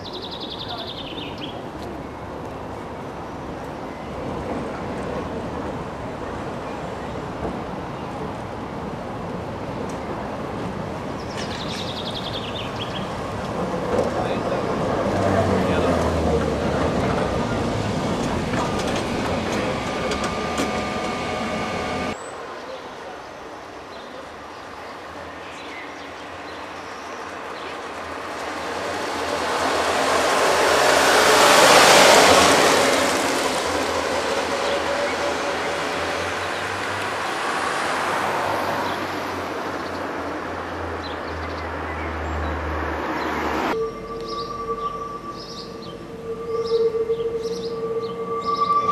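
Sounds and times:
tram wheels rumbling on rails: 0.0 - 22.2, 23.4 - 41.0
tram whine: 0.0 - 22.5, 26.7 - 39.8, 43.3 - 48.9
street noise: 0.0 - 48.9
low hum: 43.8 - 48.9.

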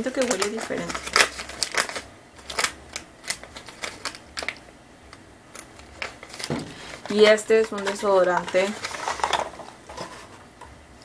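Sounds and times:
light crinkling: 0.0 - 10.7
packaging clicks and taps: 0.1 - 4.6.

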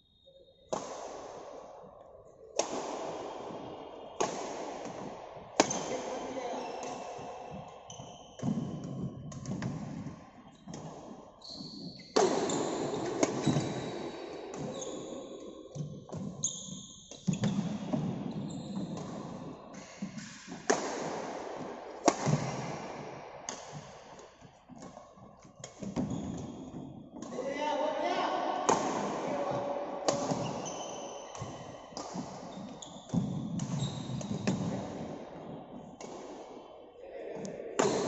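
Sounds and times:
rackets hitting shuttlecocks: 0.6 - 1.7, 2.5 - 11.2, 12.1 - 14.8, 17.1 - 27.3, 28.6 - 36.6, 37.4 - 38.0
footfalls on court floor: 15.7 - 27.4, 28.7 - 36.5.

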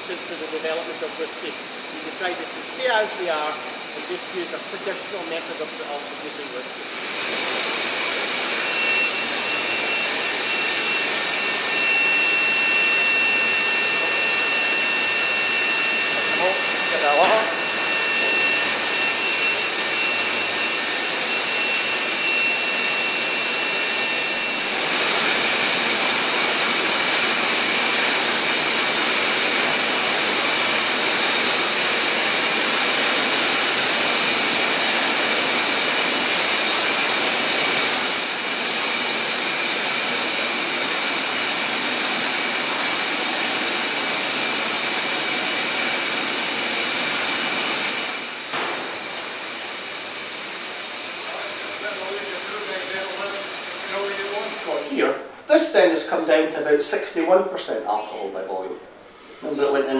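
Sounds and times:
faint high whines: 0.0 - 29.2
loud rushing machinery noise: 0.0 - 55.0.

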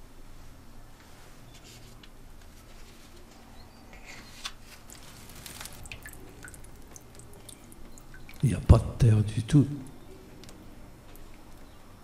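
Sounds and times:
plant handling scraping and rustling: 4.1 - 6.0.

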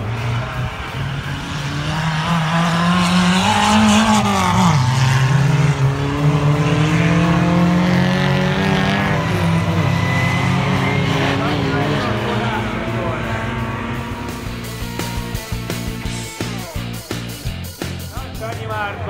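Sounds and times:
racing car engines: 0.0 - 19.0.

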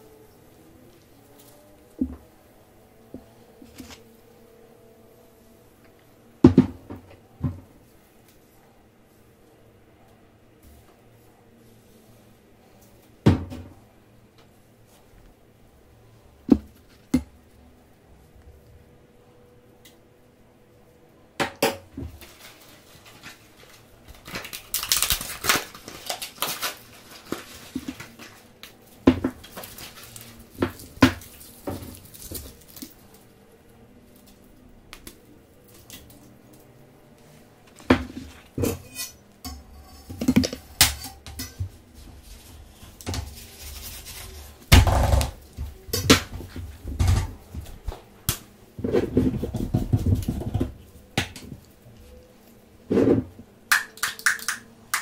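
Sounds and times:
rustling and scraping: 3.0 - 4.4, 21.9 - 34.5, 37.2 - 53.5.

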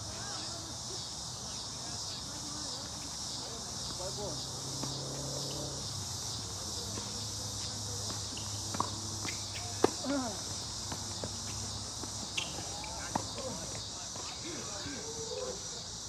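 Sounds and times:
crickets and insects chorus: 0.0 - 16.0
tennis ball knocks: 8.1 - 10.1
short squeaks: 12.3 - 12.8.

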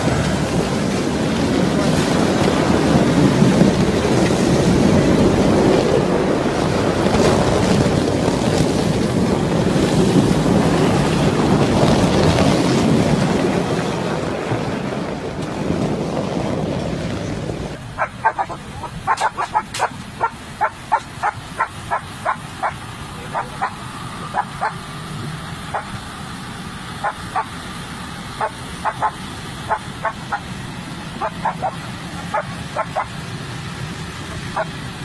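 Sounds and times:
steady low rumble: 0.0 - 35.0
dog barking: 18.0 - 24.8, 28.4 - 30.4, 31.2 - 33.1.

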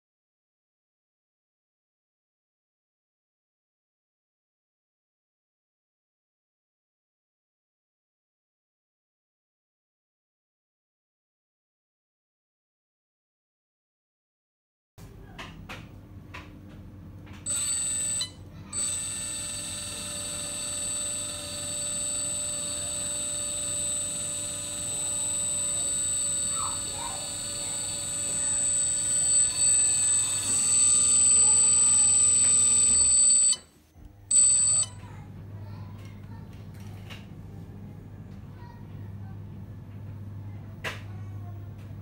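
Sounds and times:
high whine: 17.5 - 33.6
truck engine sound from small speaker: 17.5 - 33.6.

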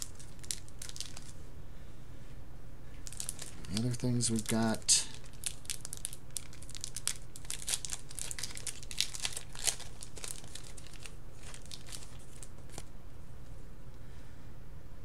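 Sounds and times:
packaging crinkling and rustling: 0.0 - 1.4, 3.0 - 12.9
low steady hum: 0.0 - 15.0.

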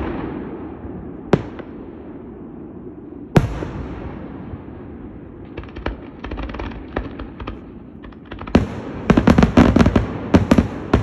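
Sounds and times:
fireworks sharp bangs: 0.0 - 2.6, 3.3 - 11.0
fireworks crackling pops: 5.4 - 11.0.

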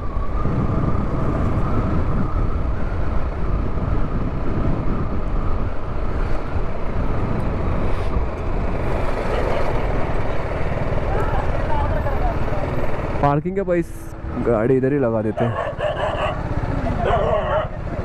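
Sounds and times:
wind noise on microphone: 0.0 - 13.1.

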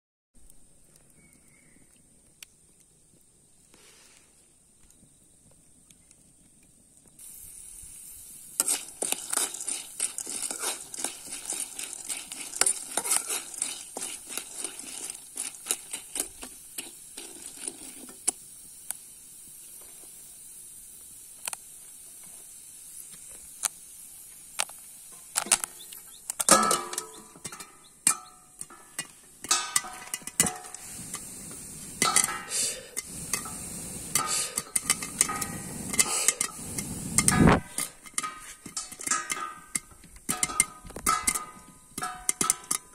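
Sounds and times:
corn sizzling in a wok: 0.4 - 42.9
metal plate clanking on wok: 26.4 - 30.8, 32.0 - 33.6, 34.2 - 42.9.

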